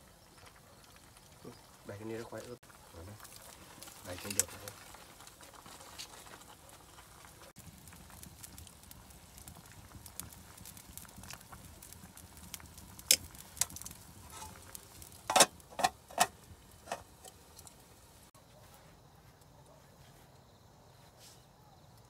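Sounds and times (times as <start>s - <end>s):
wood fire crackling: 0.0s - 20.3s
metal pot lid clinking on pot: 15.3s - 16.3s, 16.9s - 17.4s.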